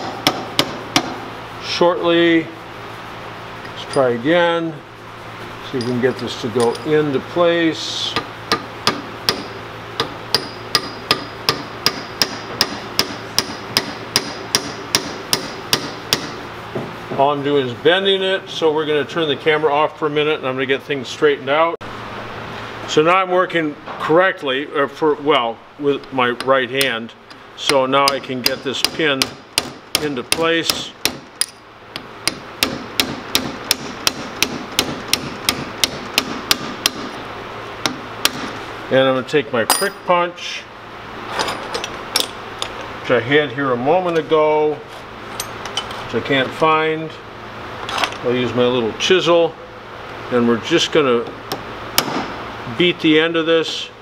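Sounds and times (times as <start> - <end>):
hammer tapping metal punch: 0.0 - 1.2, 8.1 - 16.4, 26.4 - 37.1, 39.7 - 40.1.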